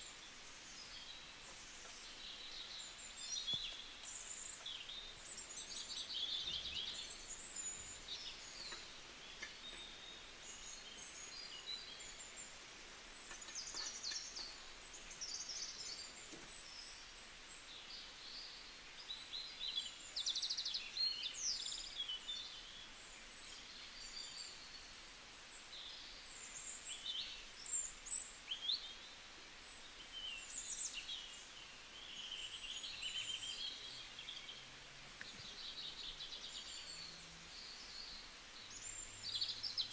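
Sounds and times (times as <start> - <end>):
birds chirping and trilling: 0.0 - 17.1, 29.9 - 39.9
faint steady hiss: 0.0 - 39.9.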